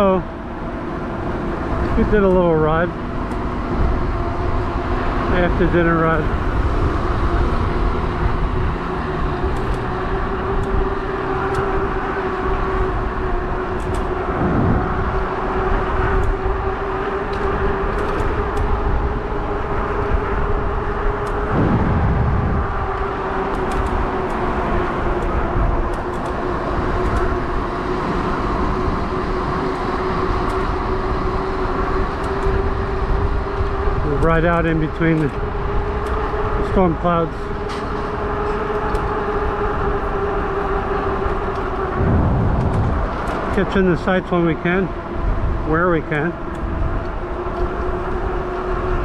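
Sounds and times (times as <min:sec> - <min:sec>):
e-bike motor whine: 0:00.0 - 0:49.0
wind and road noise: 0:00.0 - 0:49.0.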